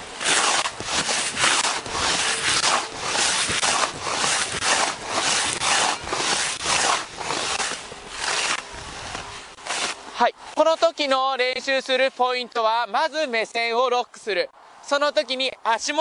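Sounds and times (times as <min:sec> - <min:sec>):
jacket rubbing: 0:00.0 - 0:11.1
snowboard scraping on snow: 0:00.0 - 0:11.1.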